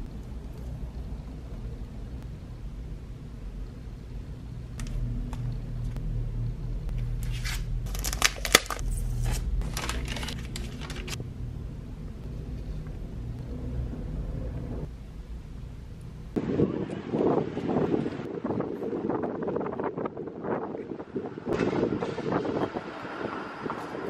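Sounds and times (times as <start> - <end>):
low steady hum: 0.0 - 19.0
paper and plastic crinkling: 7.2 - 11.2.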